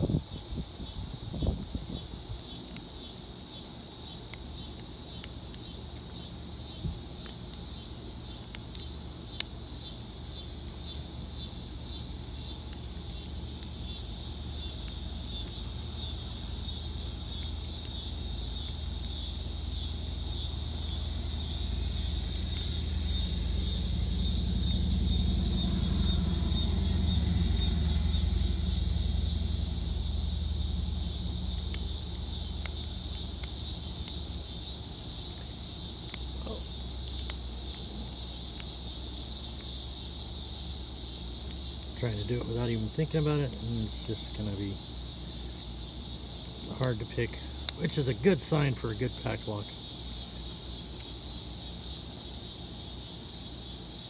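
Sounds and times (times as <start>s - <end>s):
insect chorus: 0.0s - 54.0s
low rumble: 21.3s - 32.7s.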